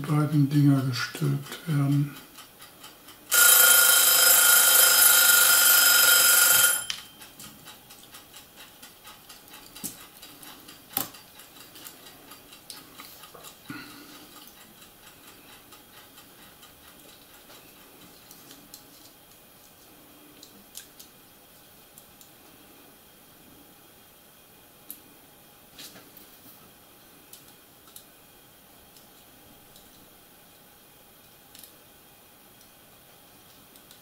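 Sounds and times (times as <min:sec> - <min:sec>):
electronic ringing alarm tone: 0:03.3 - 0:07.2.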